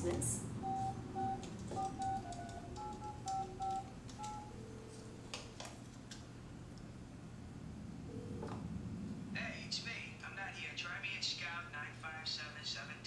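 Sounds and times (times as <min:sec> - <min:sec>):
phone keypad beeps: 0:00.6 - 0:04.6.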